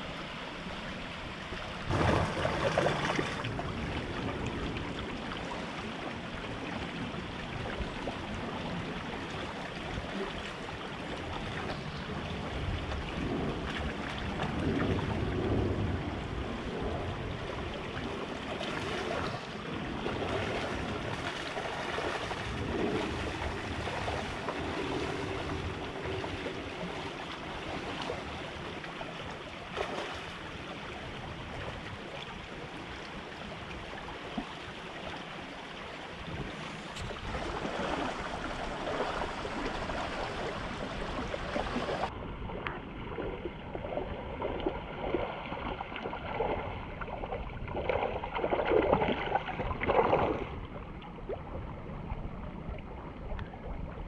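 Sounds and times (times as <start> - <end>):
creek water rushing and burbling: 0.0 - 54.0.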